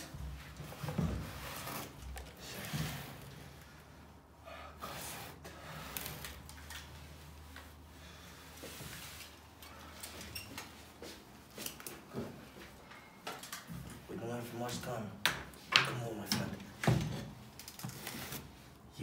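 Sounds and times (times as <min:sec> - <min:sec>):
small clicks taps and rustles: 0:13.2 - 0:14.0.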